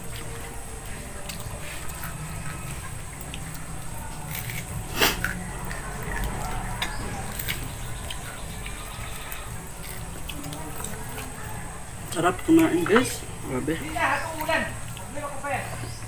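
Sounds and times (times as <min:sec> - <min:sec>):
chewing: 0:00.0 - 0:16.0.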